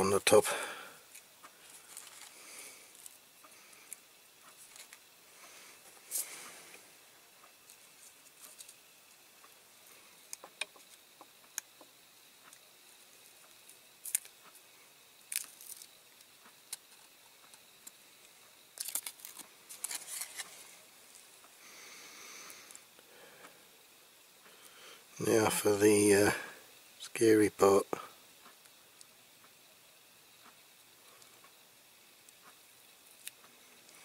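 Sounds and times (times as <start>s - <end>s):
tape and paper rustling: 18.8s - 20.6s.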